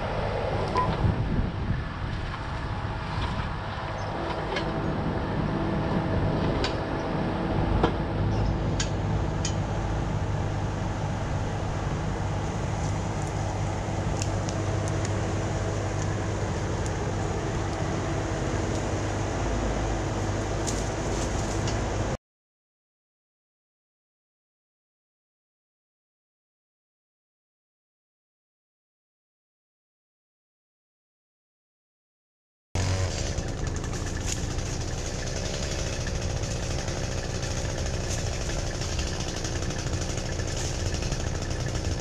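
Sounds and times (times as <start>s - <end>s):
diesel excavator engine running: 0.0s - 22.2s, 32.8s - 42.0s.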